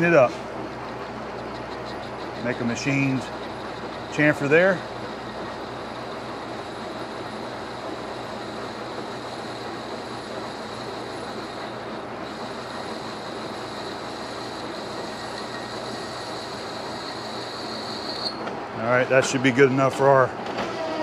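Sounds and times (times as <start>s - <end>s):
lathe running: 0.0s - 20.5s
faint high whine: 12.4s - 19.0s.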